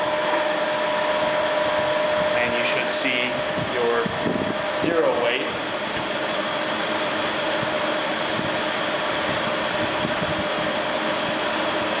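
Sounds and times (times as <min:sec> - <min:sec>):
ventilation fan running: 0:00.0 - 0:12.0.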